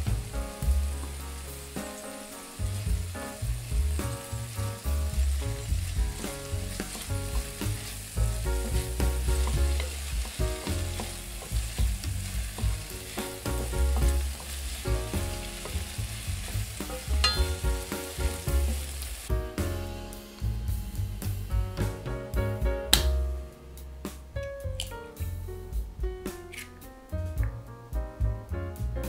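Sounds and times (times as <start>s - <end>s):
background music: 0.0s - 29.0s
vegetables sizzling in a frying pan: 0.8s - 19.3s.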